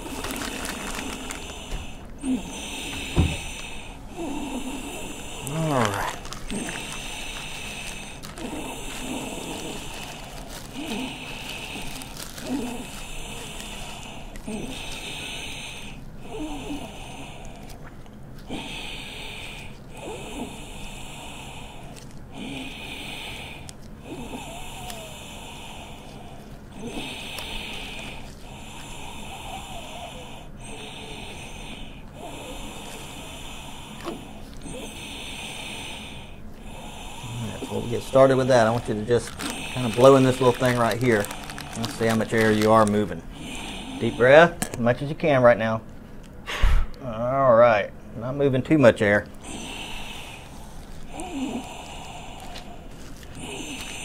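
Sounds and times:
plastic wrappers rustling and clicking: 0:00.0 - 0:02.1, 0:05.4 - 0:15.8, 0:21.9 - 0:22.3, 0:37.6 - 0:43.2, 0:49.2 - 0:54.0
child wheezy breathing: 0:00.0 - 0:17.7, 0:18.5 - 0:44.3, 0:49.4 - 0:54.0.

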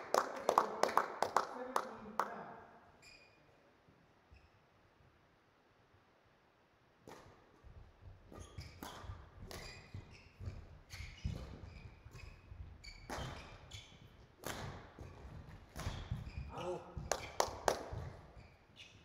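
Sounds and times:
shoes squeaking on court floor: 0:03.0 - 0:03.7, 0:08.2 - 0:19.0
rackets striking shuttlecock: 0:13.0 - 0:13.5, 0:14.4 - 0:16.3.

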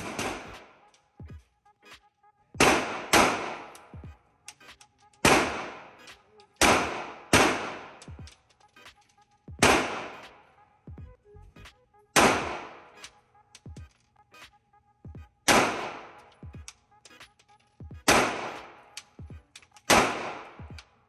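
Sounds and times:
pistol shots: 0:00.0 - 0:00.8, 0:02.6 - 0:03.9, 0:05.2 - 0:06.0, 0:06.6 - 0:08.3, 0:09.6 - 0:10.4, 0:12.2 - 0:12.9, 0:15.5 - 0:16.3, 0:18.0 - 0:19.1, 0:19.8 - 0:20.9.

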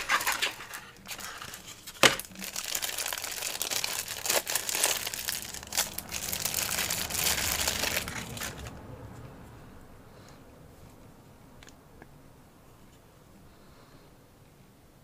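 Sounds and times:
packaging crinkling: 0:00.0 - 0:08.8.

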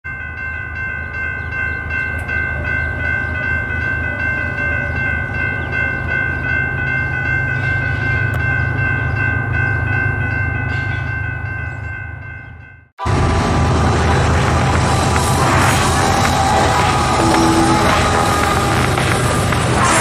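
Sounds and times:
electronic crossing warning bell: 0:00.1 - 0:13.2, 0:13.8 - 0:19.4
steady low rumble: 0:13.0 - 0:20.0.

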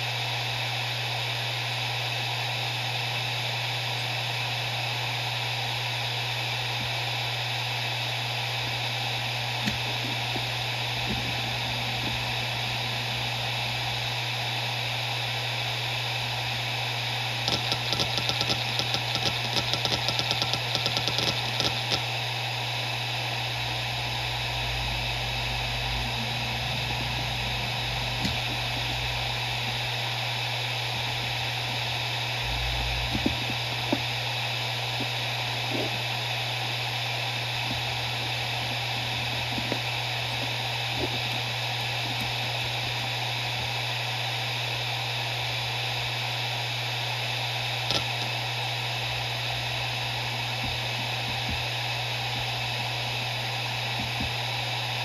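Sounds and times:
hard drive spinning: 0:00.0 - 0:55.0
hard drive head clicks: 0:17.4 - 0:22.0, 0:47.9 - 0:48.3.

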